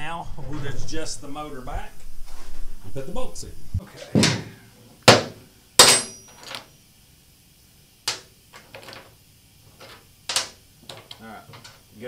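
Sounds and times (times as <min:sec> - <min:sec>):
metallic clanks of bolts and tools: 0:05.1 - 0:06.7.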